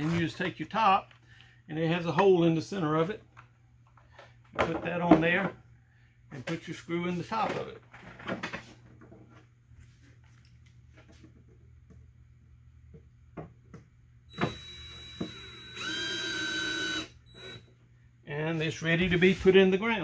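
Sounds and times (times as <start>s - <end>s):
cordless drill driving screw: 14.3s - 17.7s.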